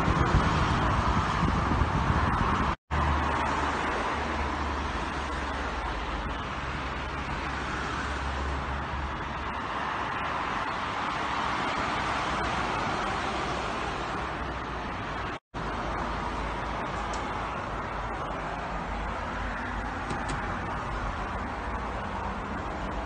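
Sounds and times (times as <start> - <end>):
highway traffic tyres and engines: 0.0 - 23.0.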